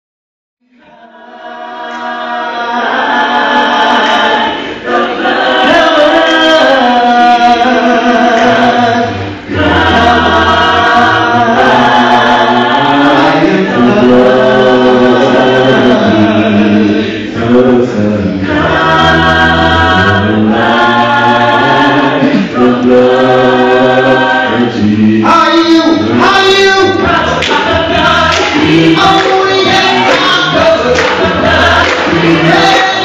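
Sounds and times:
a cappella gospel group singing: 0:00.6 - 0:33.0
low bass vocal part: 0:07.2 - 0:33.0.

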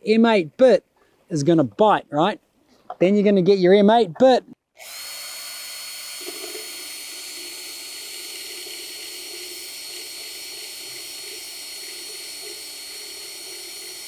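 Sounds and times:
power drill whirring: 0:04.8 - 0:14.0.

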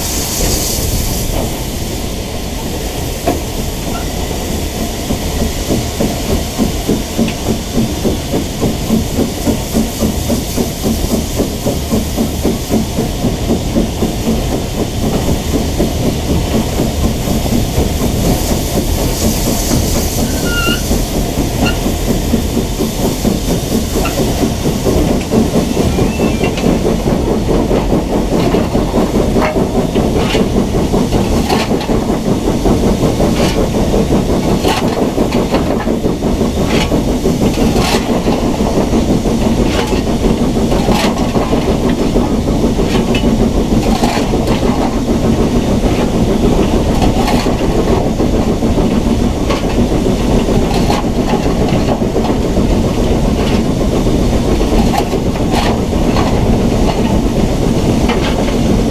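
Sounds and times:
steam hiss: 0:00.0 - 0:58.9
steam locomotive rumbling: 0:00.0 - 0:58.9.

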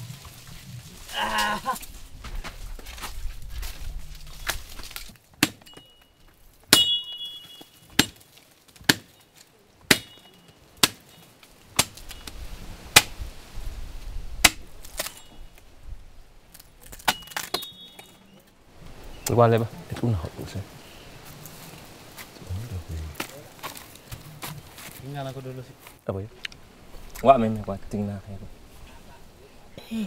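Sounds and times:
sharp metallic strikes: 0:06.7 - 0:08.2.

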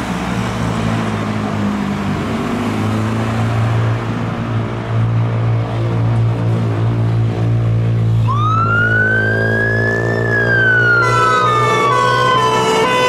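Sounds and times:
electronic wail siren: 0:08.2 - 0:13.0
two-tone horns: 0:11.0 - 0:13.0.

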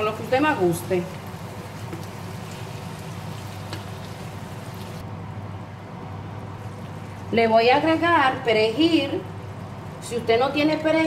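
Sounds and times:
sauce simmering in a frying pan: 0:00.1 - 0:05.0, 0:06.3 - 0:11.0
wooden spatula stirring: 0:01.4 - 0:05.0.

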